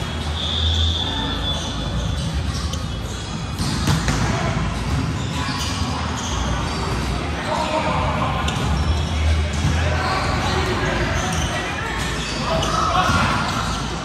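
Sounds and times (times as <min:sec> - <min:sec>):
chatter of voices: 0:04.2 - 0:14.0.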